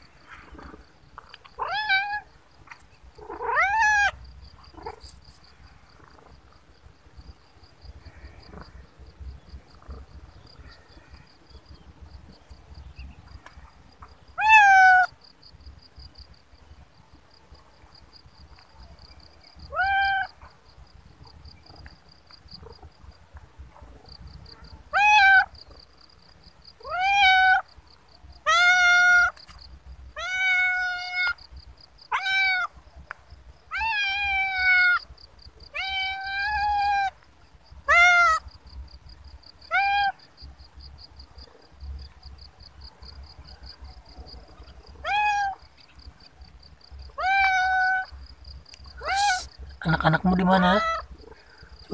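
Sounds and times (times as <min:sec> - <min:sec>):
cat meowing: 0:03.2 - 0:04.2, 0:33.7 - 0:35.0, 0:45.0 - 0:45.6, 0:47.2 - 0:48.1, 0:49.0 - 0:49.5.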